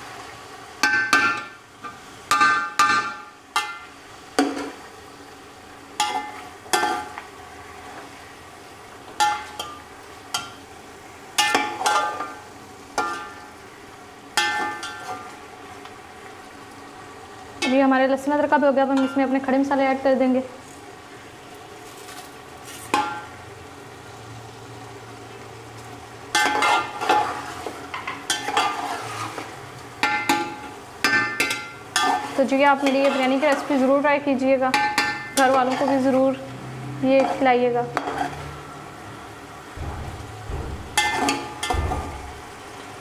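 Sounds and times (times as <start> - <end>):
food sizzling in hot oil: 0.0 - 43.0
metal spatula scraping a pot: 26.4 - 27.7, 28.3 - 29.5, 31.4 - 34.0, 35.4 - 36.2, 37.2 - 38.6, 41.0 - 41.7
spatula clanging against pot: 30.0 - 33.6, 39.8 - 42.5.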